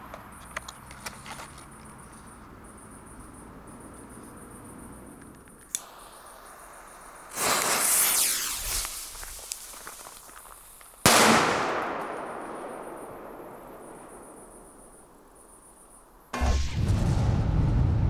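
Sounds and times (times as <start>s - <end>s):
crickets chirping: 0.0s - 16.4s
sharp click: 5.2s - 5.9s
fuse fizzing hiss: 5.7s - 11.0s.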